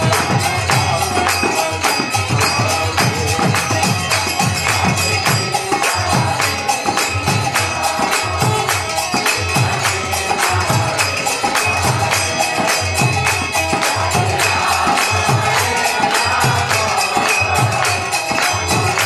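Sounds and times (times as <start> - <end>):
harmonium chords: 0.0 - 19.0
group of voices chanting: 4.6 - 19.0.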